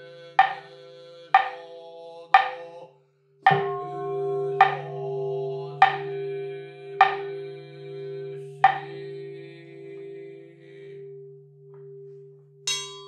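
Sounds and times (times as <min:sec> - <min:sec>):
deep bowl bell ringing: 0:03.5 - 0:13.0
small high-pitched bell: 0:12.7 - 0:13.0.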